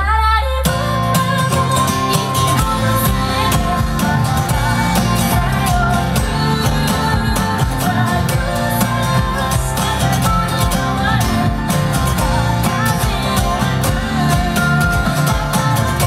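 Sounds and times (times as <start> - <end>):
acoustic guitar strumming: 0.6 - 16.0.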